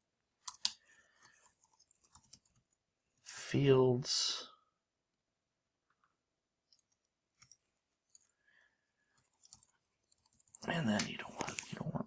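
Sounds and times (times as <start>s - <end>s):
computer keyboard and mouse clicks: 0.4s - 2.6s.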